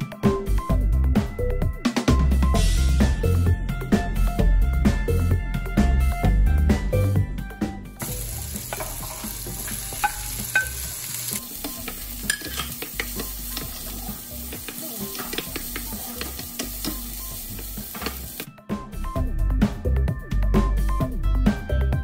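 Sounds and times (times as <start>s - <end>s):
music: 0.0s - 22.0s
vegetables sizzling in oil: 8.0s - 18.5s.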